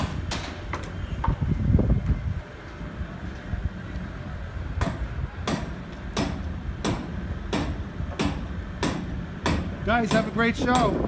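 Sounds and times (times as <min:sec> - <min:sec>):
low steady rumble: 0:00.0 - 0:11.0
hammer strikes: 0:04.8 - 0:11.0.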